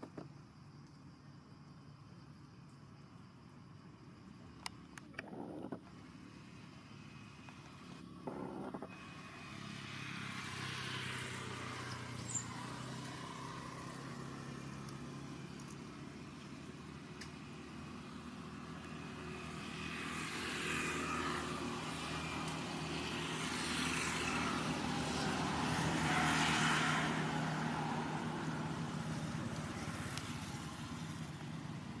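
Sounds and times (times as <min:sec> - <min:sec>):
rushing vehicle noise: 0:17.8 - 0:32.0.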